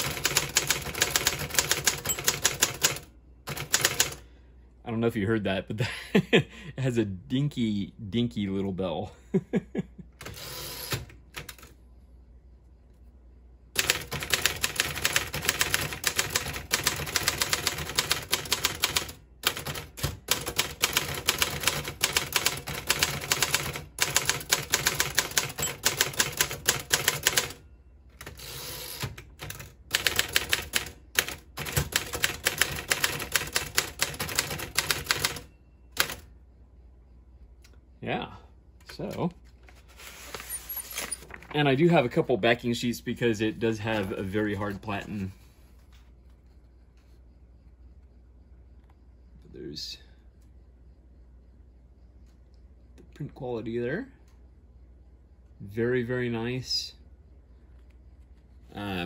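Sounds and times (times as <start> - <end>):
manual typewriter typing: 0.0 - 4.2, 13.8 - 27.6, 28.2 - 36.2.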